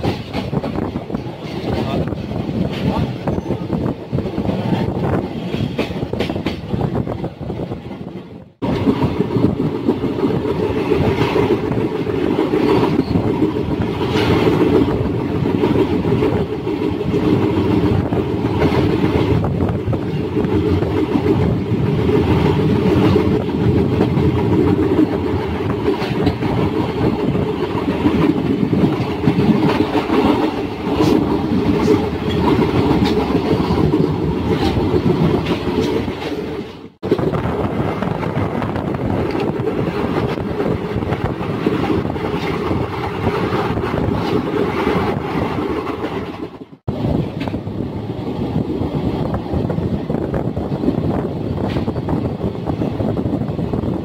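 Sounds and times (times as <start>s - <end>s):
train wheels rumbling on rails: 0.0s - 54.0s
wind: 0.0s - 54.0s
wheels clicking over rail joints: 8.6s - 47.8s.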